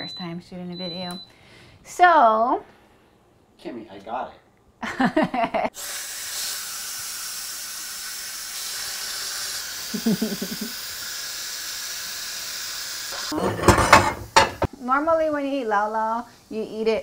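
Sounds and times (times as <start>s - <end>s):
pressure cooker venting steam: 5.7s - 17.0s.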